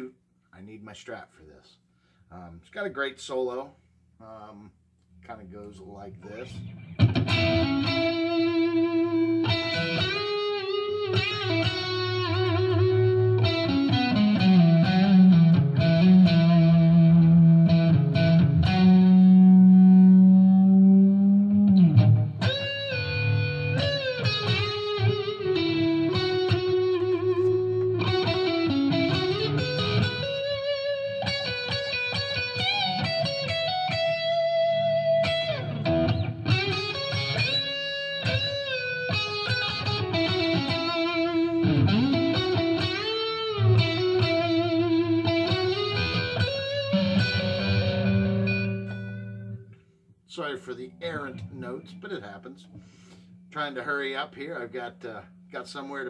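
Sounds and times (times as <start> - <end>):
electric guitar solo: 6.3 - 49.7.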